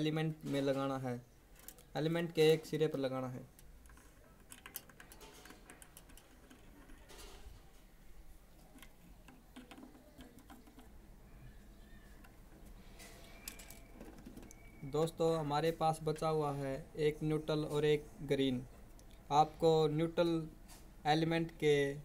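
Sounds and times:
wire connectors clicking on metal: 0:01.5 - 0:07.7, 0:12.2 - 0:14.7.

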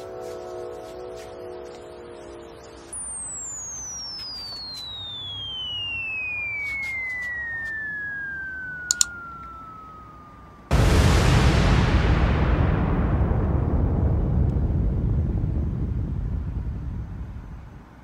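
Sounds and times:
falling whistle: 0:02.5 - 0:11.4
loud explosion: 0:10.7 - 0:18.0.

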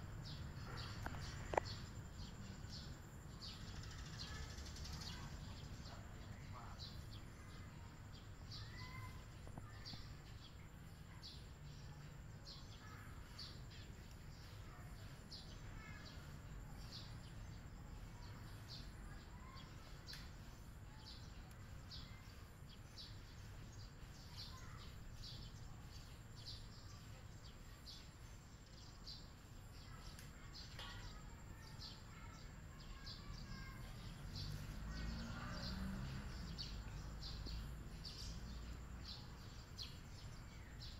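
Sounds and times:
small birds chirping: 0:00.0 - 0:40.9.

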